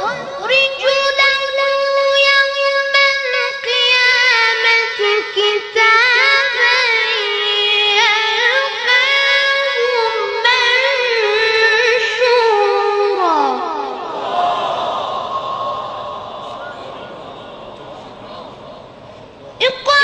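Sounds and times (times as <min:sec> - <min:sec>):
boy reciting melodically: 0:00.0 - 0:14.1, 0:19.6 - 0:20.0.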